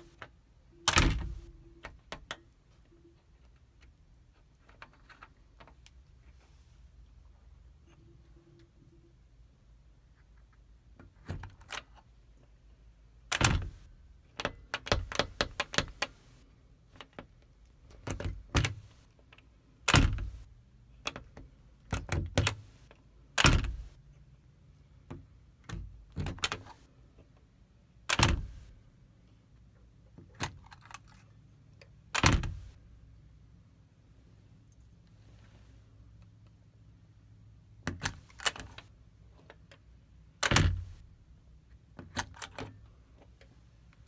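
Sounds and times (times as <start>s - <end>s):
metal door latch clicking: 0.9s - 1.5s, 13.3s - 13.8s, 19.9s - 20.4s, 28.1s - 28.6s, 32.1s - 32.6s, 40.4s - 41.0s.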